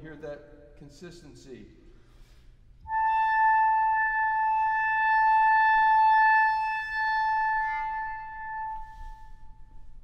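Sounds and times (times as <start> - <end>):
clarinet holding long high note: 2.8 - 9.9.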